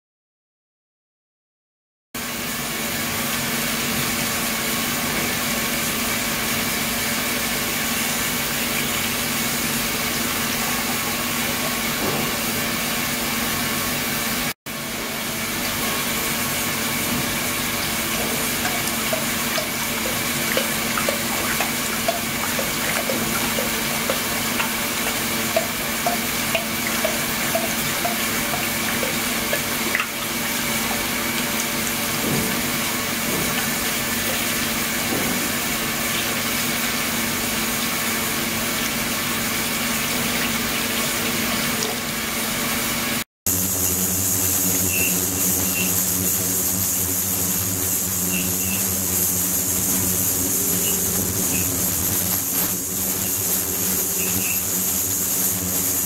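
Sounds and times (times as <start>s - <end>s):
steady hum: 14.4s - 35.6s, 43.5s - 56.0s
water splashing into tank: 15.6s - 42.2s.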